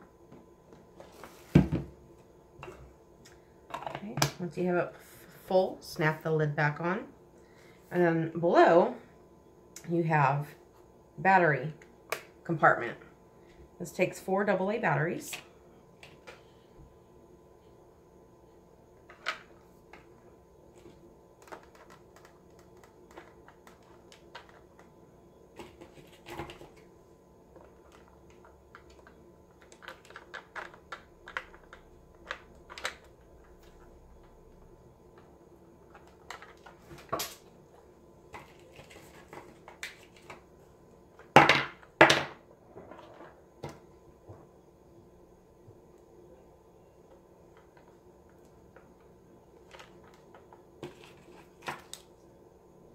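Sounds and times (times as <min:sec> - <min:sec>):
batteries and plastic clicking: 0:20.8 - 0:25.0, 0:27.5 - 0:34.4.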